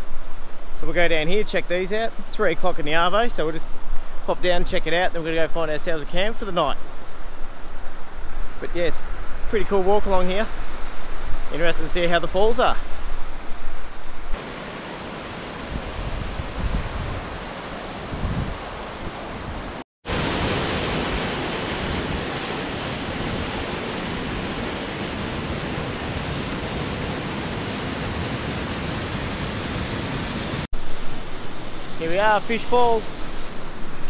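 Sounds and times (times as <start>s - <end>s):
wind buffeting microphone: 15.6s - 19.8s.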